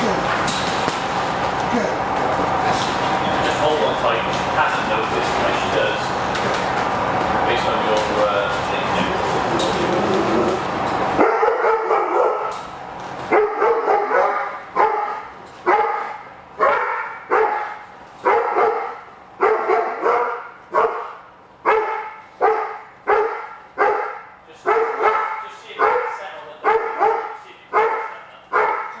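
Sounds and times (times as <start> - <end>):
dog barking with echo: 11.2 - 12.6, 13.3 - 29.0.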